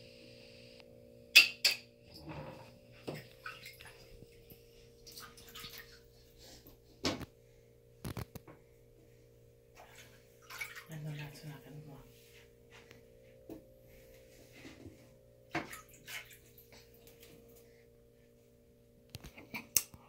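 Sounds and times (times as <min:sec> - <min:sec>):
water sloshing: 0:03.0 - 0:06.0, 0:09.7 - 0:12.1, 0:15.5 - 0:17.4
hands slapping water: 0:09.8 - 0:11.3, 0:15.6 - 0:17.3.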